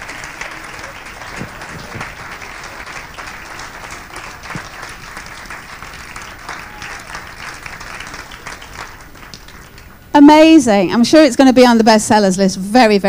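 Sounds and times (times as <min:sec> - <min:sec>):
people applauding: 0:00.0 - 0:10.1.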